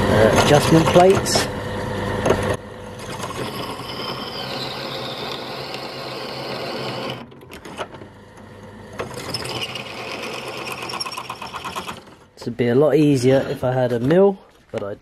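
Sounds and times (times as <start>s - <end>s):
drill press cutting metal: 2.3s - 8.0s, 8.9s - 12.3s.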